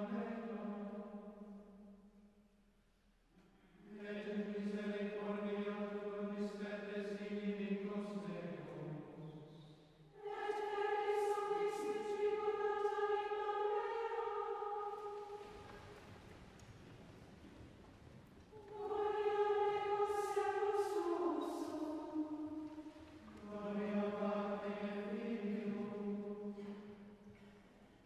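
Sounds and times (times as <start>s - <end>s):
choir chanting in unison: 0.0s - 1.6s, 3.8s - 9.1s, 10.1s - 15.9s, 18.5s - 27.2s.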